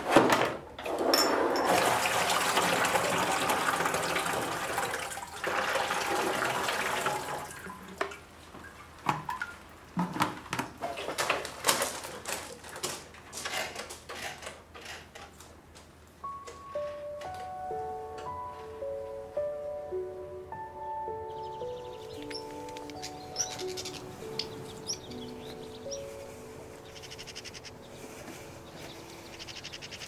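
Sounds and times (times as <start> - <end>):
liquid pouring into a tank: 1.6 - 8.2.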